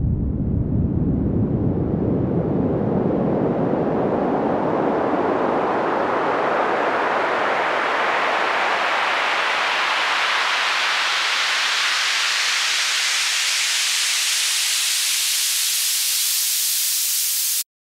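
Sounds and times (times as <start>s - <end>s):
noise band sweeping upward: 3.6s - 17.6s.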